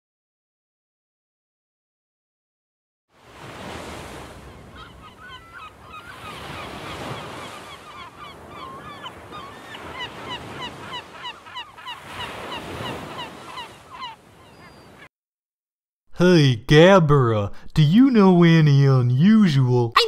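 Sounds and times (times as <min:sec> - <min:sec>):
surf washing in: 0:03.2 - 0:14.0
bird calls: 0:04.4 - 0:15.1.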